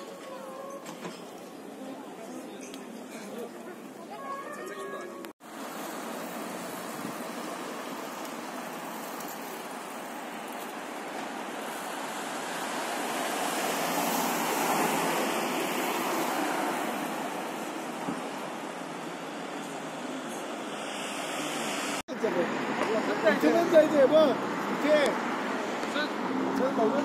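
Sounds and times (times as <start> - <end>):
traffic hiss: 5.4 - 26.9.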